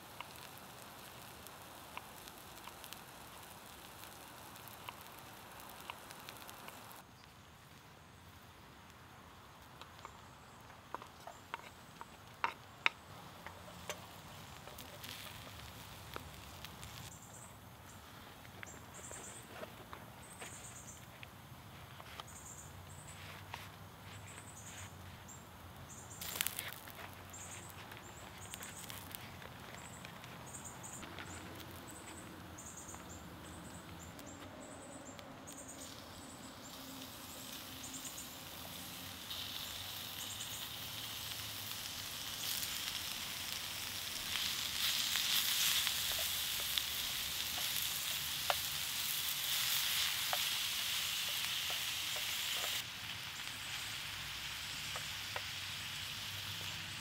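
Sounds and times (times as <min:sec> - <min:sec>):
meat and onions sizzling in pan: 0:00.0 - 0:07.3, 0:09.0 - 0:17.4, 0:26.0 - 0:33.2, 0:35.5 - 0:57.0
wooden spoon stirring ticks: 0:47.4 - 0:48.8, 0:49.6 - 0:50.6.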